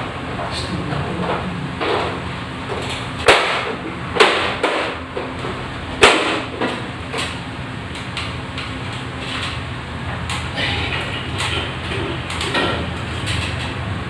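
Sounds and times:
steady low hum: 0.0 - 14.0
light fixture clacks and knocks: 6.0 - 13.8.

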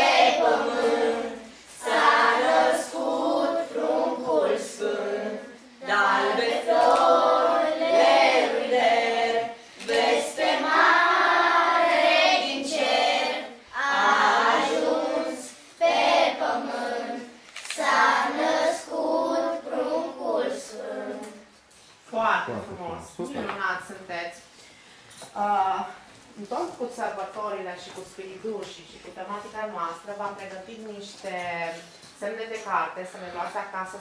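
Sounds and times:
children singing unaccompanied: 0.0 - 21.5.

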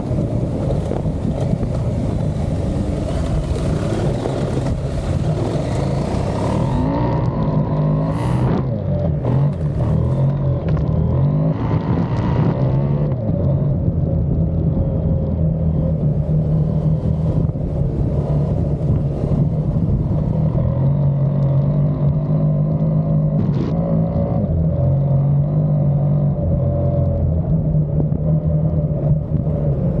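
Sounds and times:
tyres on gravel: 0.0 - 6.9
motorcycle engine running: 0.0 - 21.2
wind noise: 0.0 - 25.0, 26.4 - 30.0.

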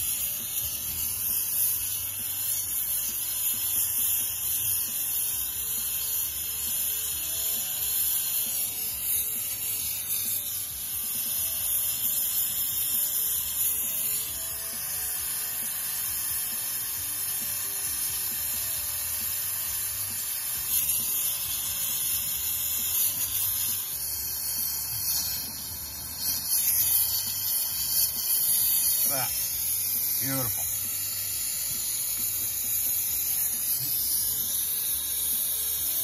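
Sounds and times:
gas torch hissing: 0.0 - 36.0.

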